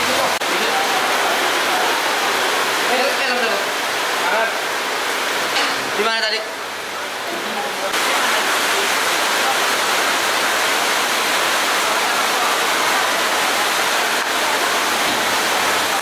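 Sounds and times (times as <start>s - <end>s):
heavy rain falling: 0.0s - 16.0s.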